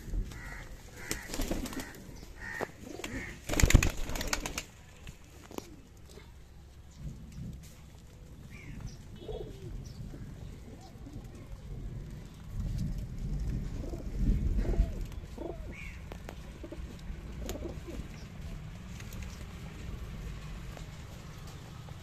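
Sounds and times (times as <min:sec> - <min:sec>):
pigeons cooing: 0:00.0 - 0:03.9, 0:08.5 - 0:12.3, 0:13.4 - 0:18.4
low rumble: 0:06.4 - 0:21.2.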